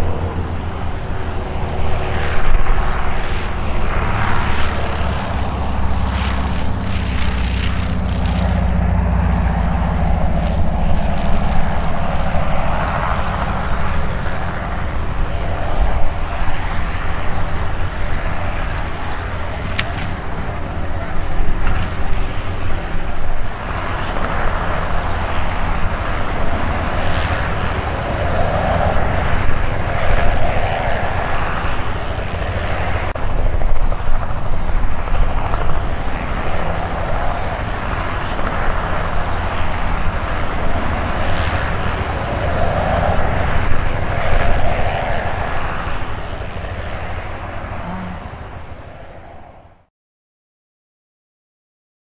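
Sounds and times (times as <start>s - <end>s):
aircraft piston engine idling: 2.7s - 17.9s.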